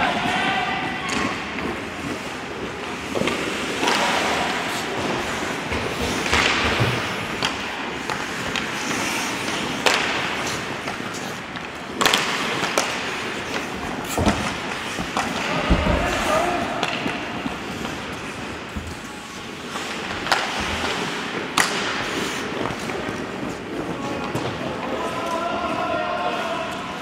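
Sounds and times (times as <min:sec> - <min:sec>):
sticks clacking on puck: 0:00.0 - 0:25.8
skate blades scraping ice: 0:00.0 - 0:27.0
puck hitting the boards: 0:02.8 - 0:23.5.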